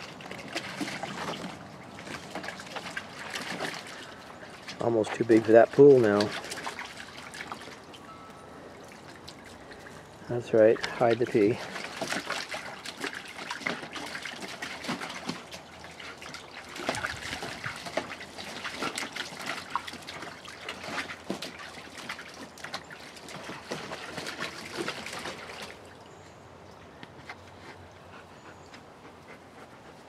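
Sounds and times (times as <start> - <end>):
dog splashing in water: 0.0 - 8.0, 10.7 - 26.1.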